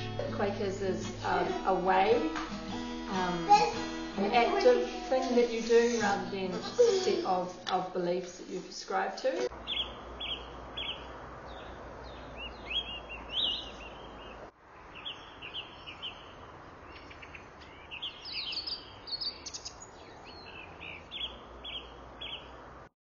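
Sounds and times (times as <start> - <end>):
outdoor background noise: 0.0 - 22.9
small birds chirping: 9.4 - 22.6.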